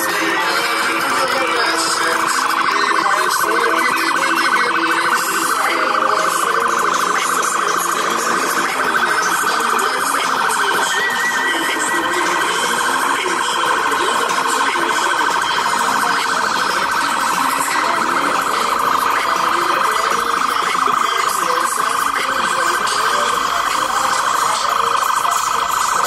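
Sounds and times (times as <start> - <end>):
crowd: 0.0 - 26.0
pulsing electronic alarm tone: 0.0 - 26.0
traffic: 0.0 - 26.0.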